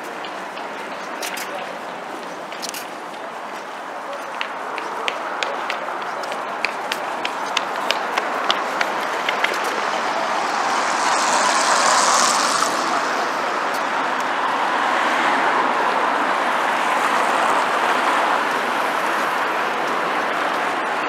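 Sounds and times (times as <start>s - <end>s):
cars rushing past: 4.6s - 21.0s
vehicle passing: 5.9s - 20.9s.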